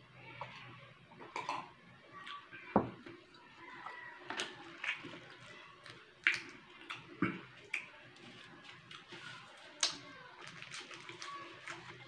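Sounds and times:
chewing food with crunches: 3.1s - 12.0s.

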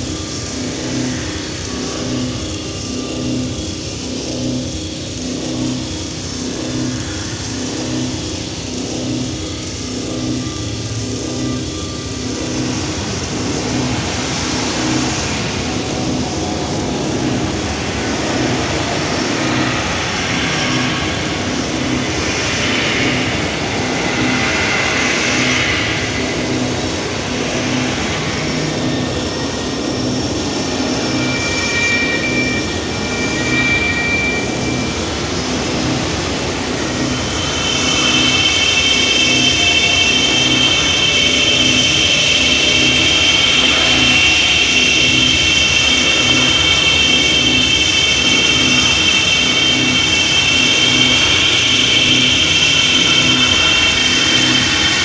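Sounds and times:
low pulse: 26.2s - 55.0s
thin high tone: 30.4s - 55.0s.

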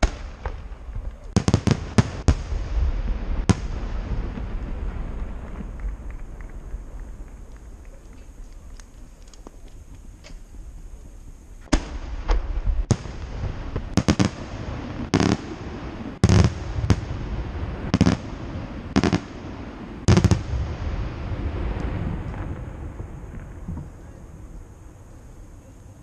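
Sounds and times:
low rumble: 2.3s - 25.9s.

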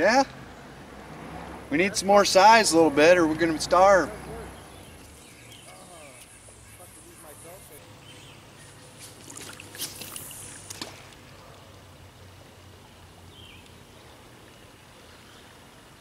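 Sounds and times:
river water trickling: 0.0s - 16.0s
short sharp splashes: 8.9s - 11.5s.

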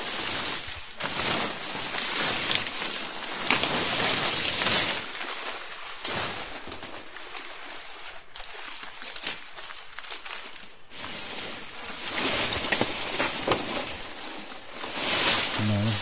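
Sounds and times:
leaves rustling and crackling: 0.0s - 16.0s
twigs snapping: 1.9s - 5.4s, 12.1s - 13.9s.

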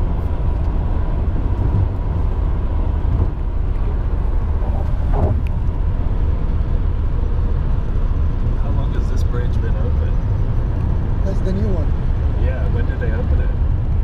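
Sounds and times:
road and engine rumble: 0.0s - 14.0s.

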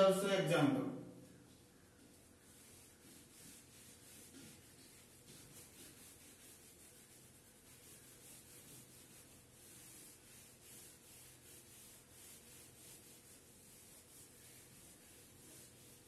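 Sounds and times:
eraser rubbing on whiteboard: 2.1s - 16.0s.

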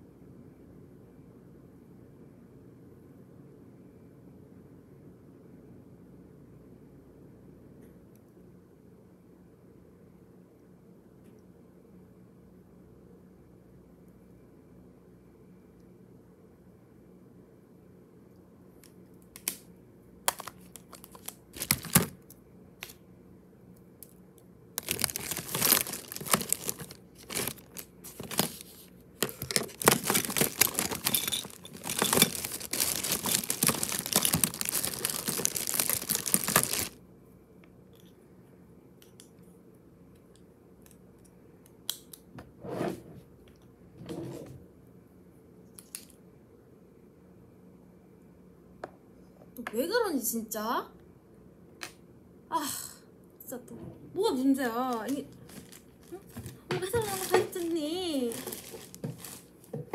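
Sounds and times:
makeup packaging clicks: 20.3s - 22.2s, 24.8s - 28.6s, 29.2s - 36.9s
packaging crinkling and rubbing: 20.3s - 22.2s, 24.8s - 37.0s, 55.0s - 59.7s
packaging rustles: 20.3s - 22.2s, 24.8s - 37.0s, 55.0s - 59.9s.

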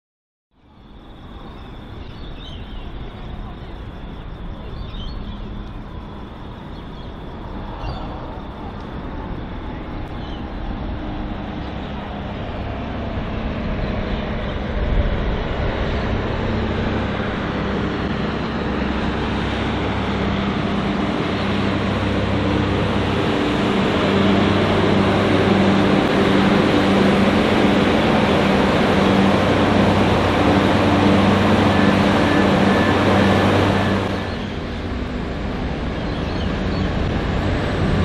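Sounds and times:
diesel engine hum: 0.6s - 38.0s
diesel railcar approaching: 0.6s - 38.0s.

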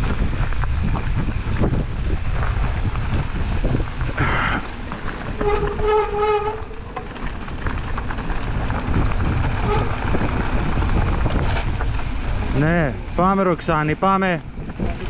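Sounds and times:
wind on microphone: 0.0s - 13.2s, 14.1s - 15.0s
tyres rumbling on rough trail: 0.0s - 15.0s
bike disc brakes squealing: 5.3s - 7.8s.

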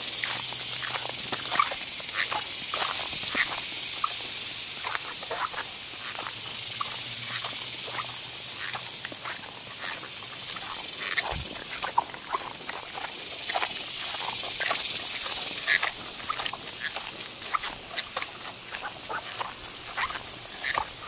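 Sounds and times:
footsteps on grass and gravel: 0.0s - 21.0s
rustles: 0.0s - 21.0s
steady high hiss: 0.0s - 21.0s.

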